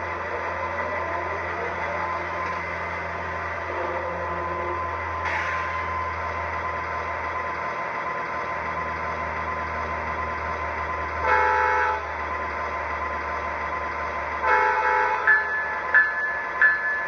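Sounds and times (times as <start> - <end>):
diesel engine idling: 0.0 - 17.0
train horn blasts: 11.2 - 12.1, 14.4 - 15.4
repeating ringing tone: 15.3 - 17.0.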